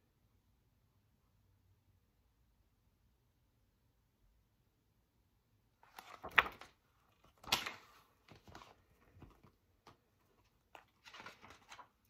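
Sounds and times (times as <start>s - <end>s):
paper rustling: 5.8s - 12.0s.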